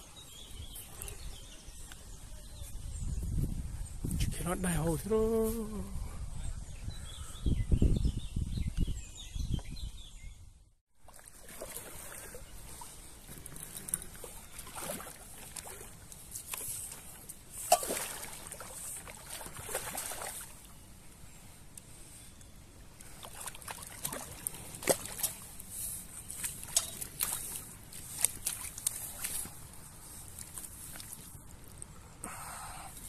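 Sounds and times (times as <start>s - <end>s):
water sloshing and splashing: 11.0s - 20.7s, 23.0s - 31.9s.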